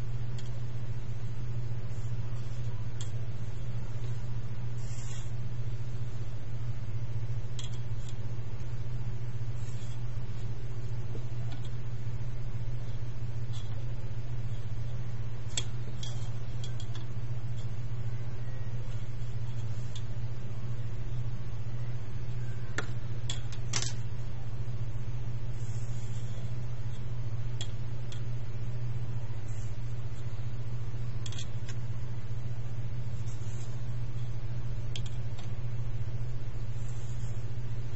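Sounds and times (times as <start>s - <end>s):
steady low hum: 0.0s - 37.9s.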